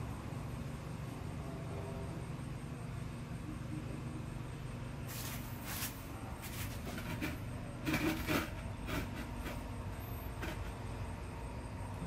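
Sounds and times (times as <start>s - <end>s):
rustles and knocks of handling: 5.1s - 10.9s.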